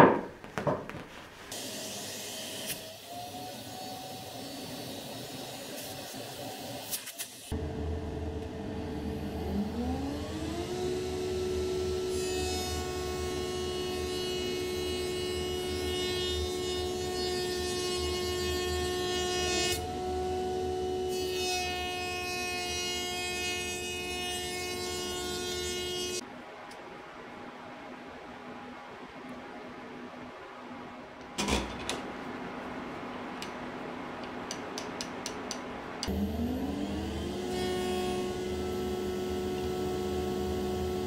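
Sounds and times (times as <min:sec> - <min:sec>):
router motor whine: 0:36.1 - 0:41.0.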